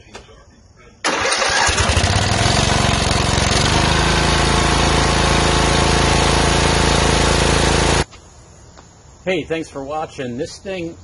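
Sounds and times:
riding mower engine running: 1.1s - 8.1s.

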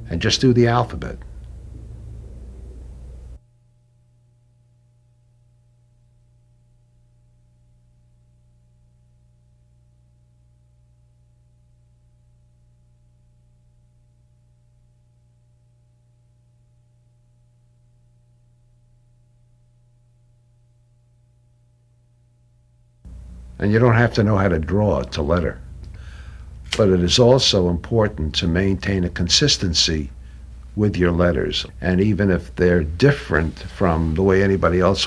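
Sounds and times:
faint high steady tones: 0.0s - 3.4s, 23.0s - 35.0s
low hum: 0.0s - 35.0s.

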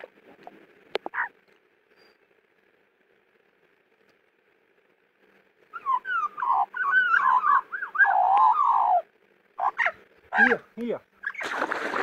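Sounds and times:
magpie warbling: 5.7s - 10.6s.

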